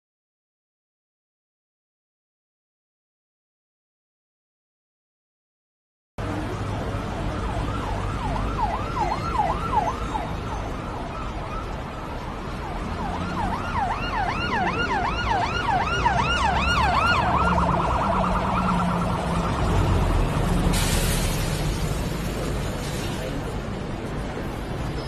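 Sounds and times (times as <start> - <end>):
low traffic rumble: 6.2 - 25.0
electronic siren yelping: 12.6 - 19.8.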